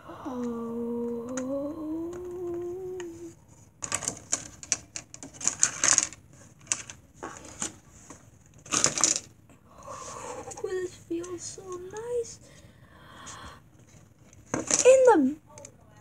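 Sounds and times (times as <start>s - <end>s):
person humming: 0.0s - 3.4s
plastic packaging crinkling: 3.8s - 9.3s.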